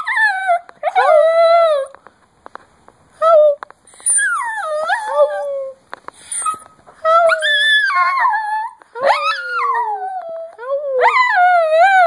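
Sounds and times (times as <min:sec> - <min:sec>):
small dog howling: 0:03.3 - 0:12.0.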